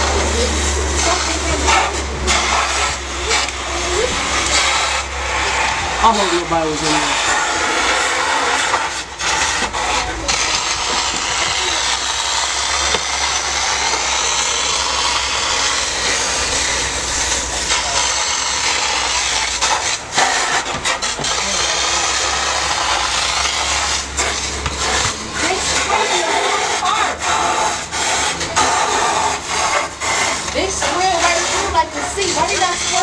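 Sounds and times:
fire rushing hiss: 0.0 - 33.0
fire crackles and pops: 7.2 - 26.0.

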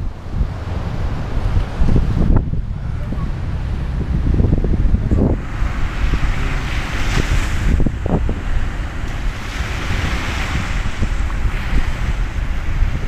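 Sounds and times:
wind buffeting microphone: 0.0 - 13.0
small waves breaking on shore: 4.8 - 13.0.

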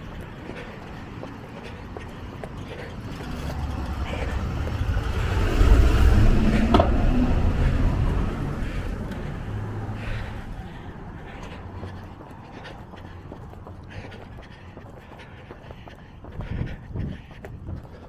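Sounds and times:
bus diesel engine passing: 0.0 - 15.4.

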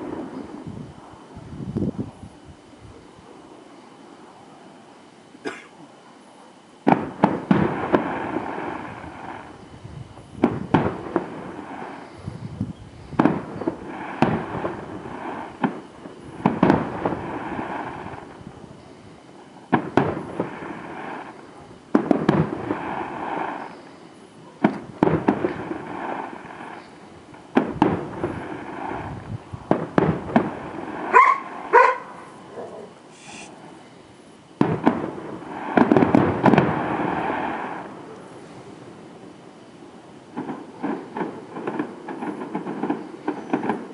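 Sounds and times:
distant fireworks bursting: 0.0 - 6.0, 6.6 - 43.9
dog barking: 31.1 - 32.9.

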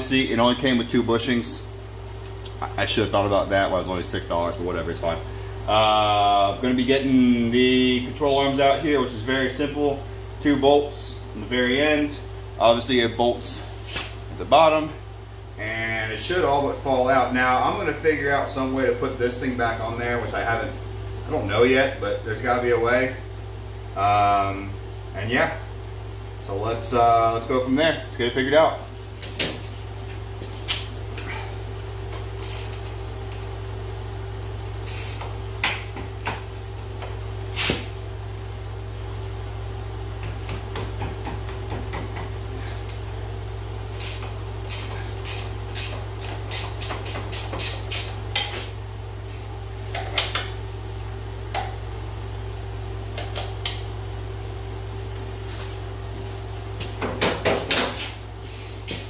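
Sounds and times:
ratchet clicking: 32.4 - 33.5, 34.8 - 35.3.

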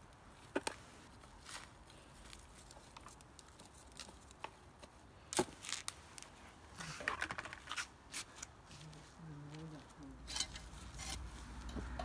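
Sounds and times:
trowel scraping through compost: 10.2 - 11.7.

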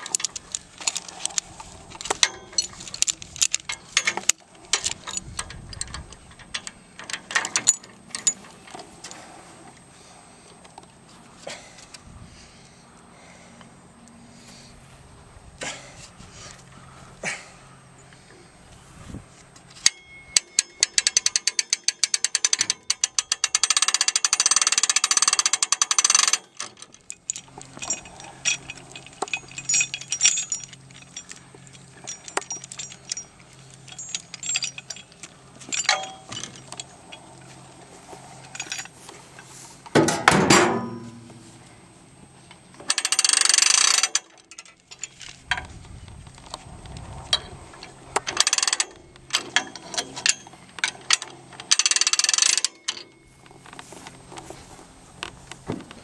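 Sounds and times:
winch ratcheting: 0.0 - 8.9, 19.8 - 37.3, 42.8 - 53.8
chain and hooks clinking: 0.0 - 9.3, 19.6 - 39.9, 42.7 - 55.6.

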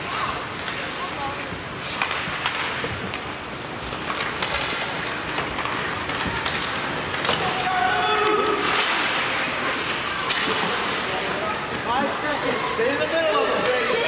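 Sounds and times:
hockey sticks hitting puck: 0.0 - 14.0
skate blades scraping ice: 0.0 - 14.0
spectators shouting: 7.4 - 8.8.

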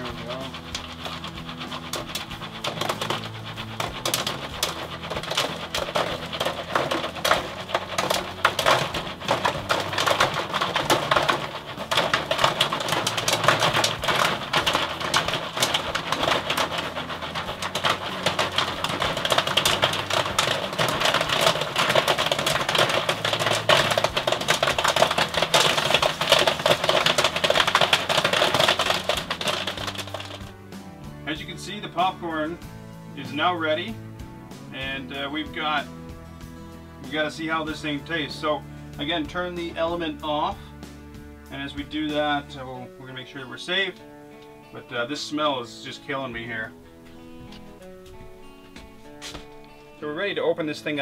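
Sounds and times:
popcorn popping: 0.0 - 30.8, 47.5 - 49.8.

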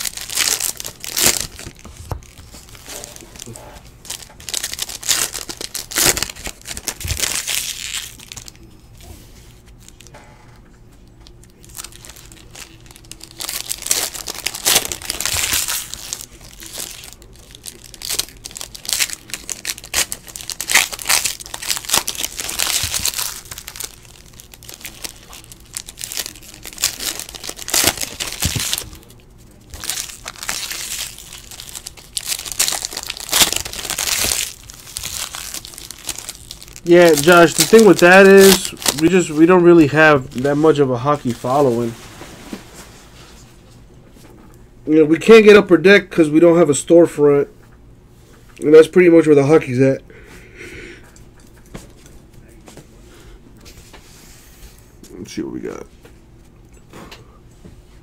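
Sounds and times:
foil wrappers crinkling and tearing: 0.0 - 10.1, 11.3 - 42.1.

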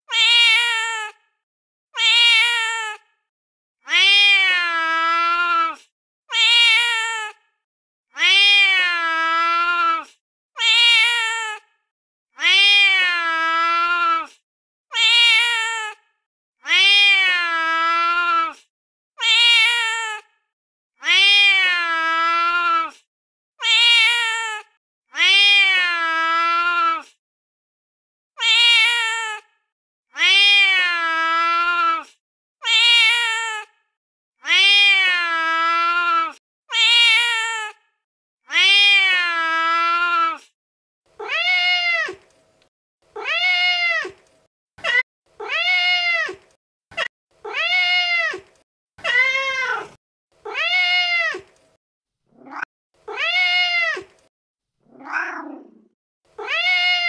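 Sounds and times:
recorded cat meows: 0.0 - 1.2, 2.0 - 3.1, 3.8 - 7.4, 8.1 - 11.7, 12.4 - 16.0, 16.6 - 20.3, 21.0 - 27.2, 28.4 - 29.5, 30.1 - 33.7, 34.4 - 37.8, 38.5 - 40.5, 41.1 - 42.3, 43.1 - 51.6, 52.3 - 57.0
low rough cat call: 52.4 - 54.0, 54.9 - 57.0.

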